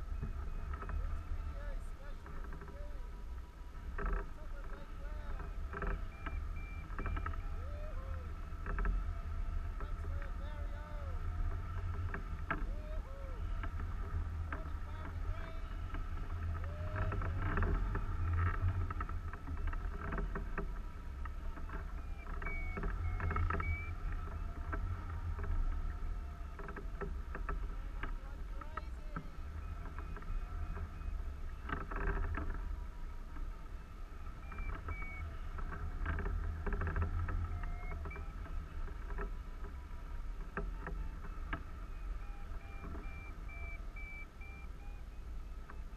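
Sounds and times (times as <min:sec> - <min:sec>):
faint whistling tones: 0:04.7 - 0:11.9, 0:21.2 - 0:26.6, 0:27.8 - 0:45.9.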